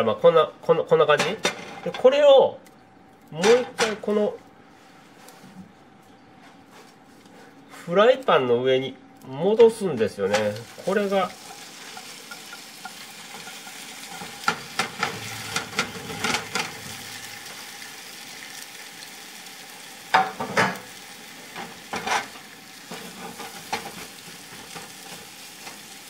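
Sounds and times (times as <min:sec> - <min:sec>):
omelette sizzling in frying pan: 0:10.4 - 0:26.0
spatula and plate knocking pan: 0:20.1 - 0:20.8.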